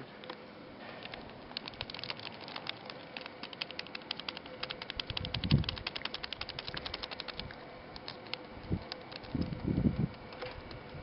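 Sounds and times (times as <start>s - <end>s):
foil packet crinkling: 1.4s - 9.4s.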